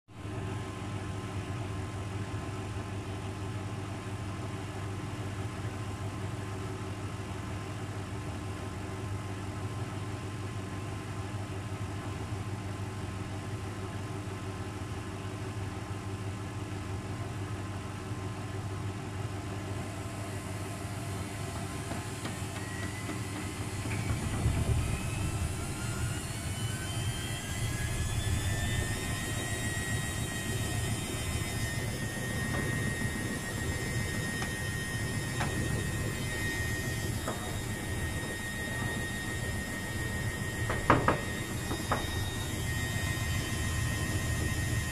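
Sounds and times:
washing machine spin whine: 0:00.0 - 0:44.9
washing machine drum motor humming: 0:05.5 - 0:44.9
unbalanced drum rumbling: 0:23.2 - 0:42.4.

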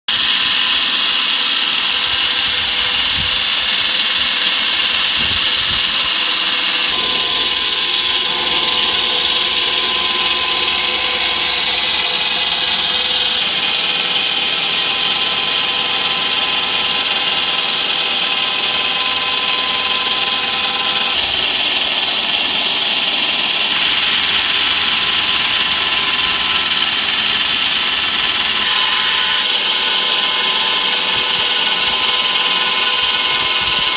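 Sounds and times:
wall saw cutting concrete: 0:00.1 - 0:33.9
drive motor hum: 0:04.9 - 0:13.6.

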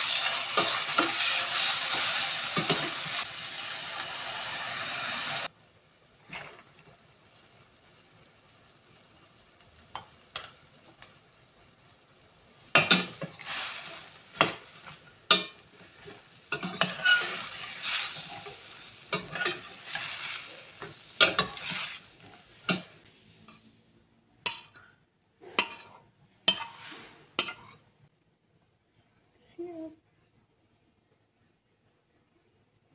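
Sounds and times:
metal spatula scraping a pan: 0:00.0 - 0:03.3, 0:12.7 - 0:22.9, 0:25.4 - 0:27.9
food sizzling: 0:00.0 - 0:23.6, 0:25.6 - 0:27.8.

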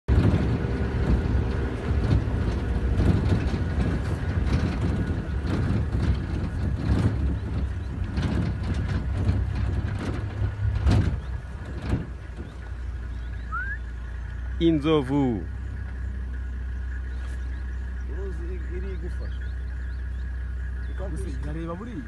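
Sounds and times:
knocks and rattles: 0:00.0 - 0:14.6
vehicle engine rumbling: 0:00.0 - 0:22.0.

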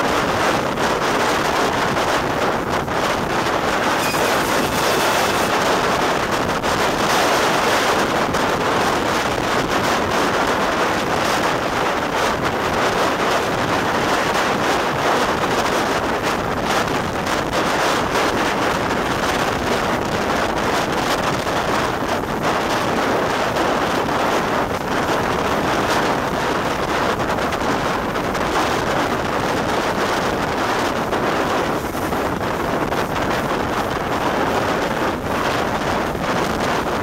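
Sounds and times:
wind rushing over microphone: 0:00.0 - 0:37.0
steam train running noise: 0:03.4 - 0:08.8.

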